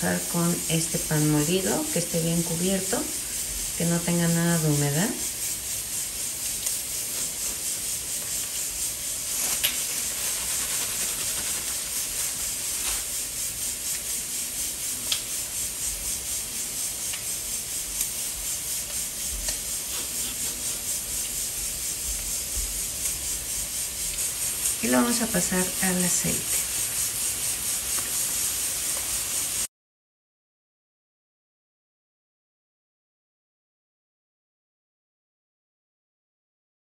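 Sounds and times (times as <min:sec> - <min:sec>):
steady high hiss: 0:00.0 - 0:29.7
breadcrumbs rustling under hands: 0:07.0 - 0:13.9.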